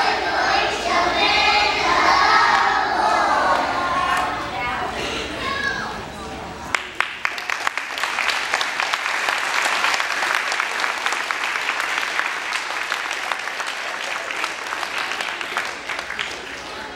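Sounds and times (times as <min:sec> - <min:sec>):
audience applauding: 0:06.7 - 0:16.9.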